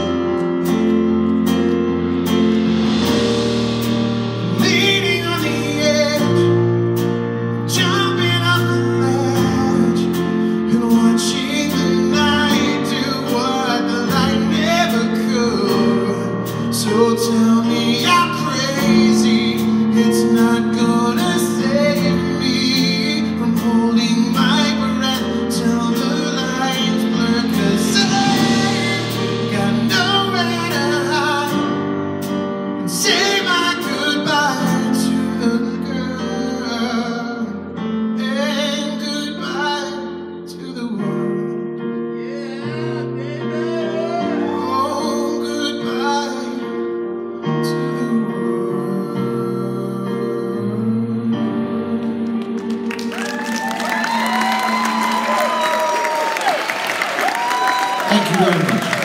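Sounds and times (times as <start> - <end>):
band playing: 0.0 - 37.1, 51.5 - 59.0
man singing into microphone: 4.4 - 32.0, 32.8 - 56.0, 58.0 - 59.0.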